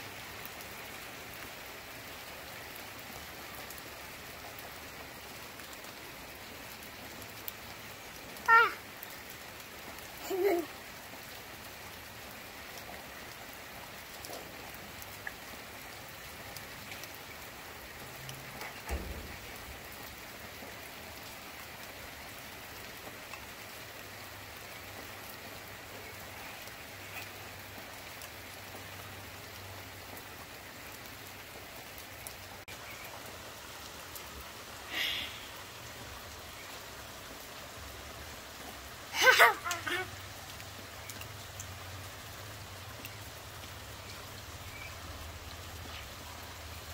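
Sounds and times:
steady rain falling: 0.0 - 46.9.

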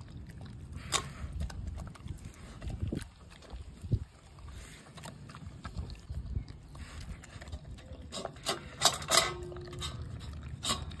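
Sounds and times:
dog chewing and lapping: 0.0 - 11.0.

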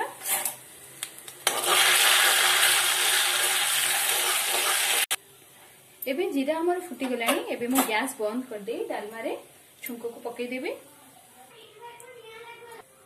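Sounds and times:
spices sizzling in hot oil: 0.1 - 5.2.

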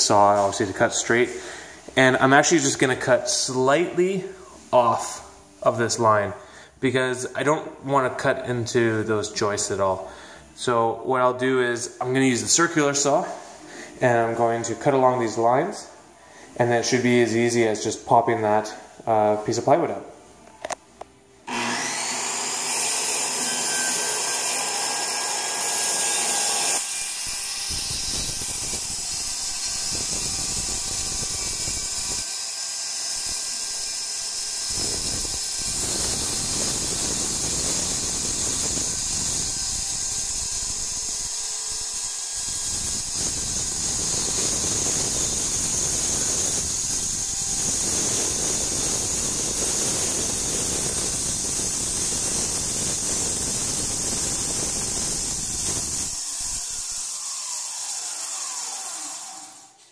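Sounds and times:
circular saw cutting plywood: 21.5 - 59.9.

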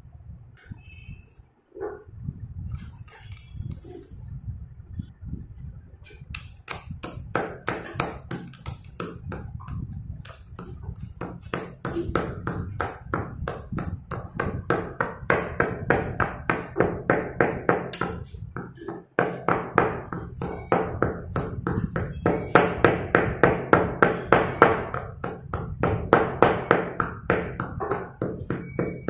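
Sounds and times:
stone pestle pounding in mortar: 6.7 - 29.0.

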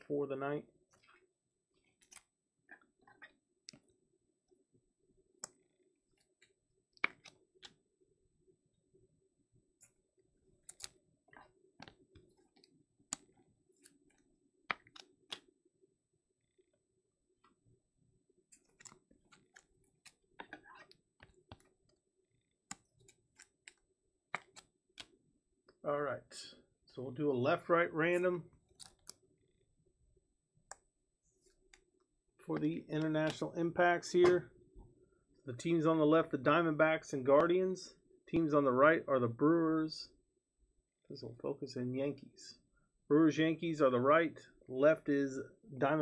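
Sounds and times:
cards clicking and scraping: 1.8 - 2.3, 6.2 - 7.8, 10.6 - 11.0, 11.8 - 15.5, 18.5 - 22.0, 22.6 - 25.2, 28.7 - 29.2
cards clicking and tapping in plastic: 24.4 - 25.1.

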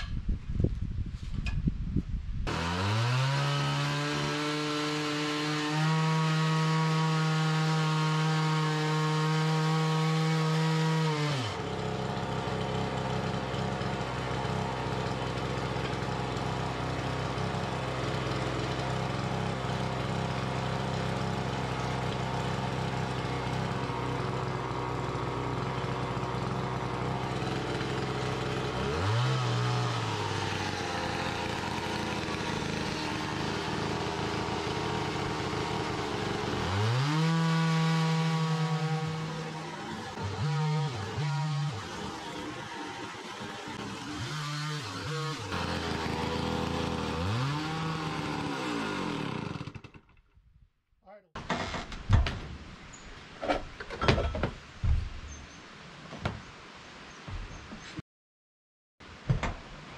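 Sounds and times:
chainsaw cutting log: 2.4 - 50.2.

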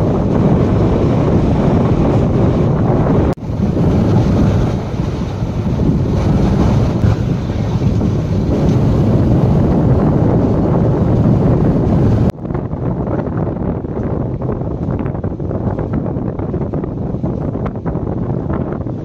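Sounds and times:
train running noise: 0.0 - 12.3
wind buffeting microphone: 0.0 - 19.0.

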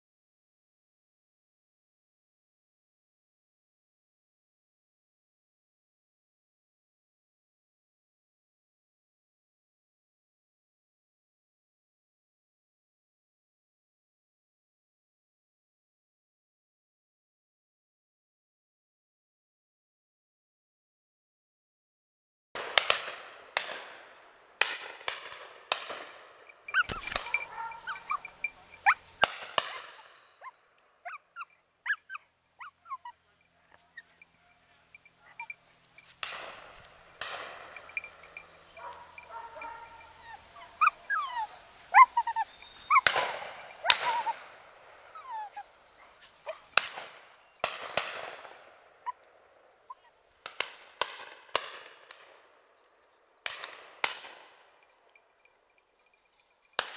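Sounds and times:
dog whining and yipping: 26.7 - 34.4, 35.2 - 36.0, 37.7 - 47.0, 49.8 - 50.2.

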